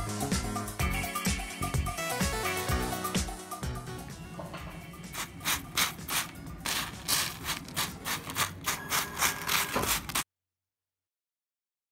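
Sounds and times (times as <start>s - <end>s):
fork scraping fried garlic: 5.1s - 10.2s.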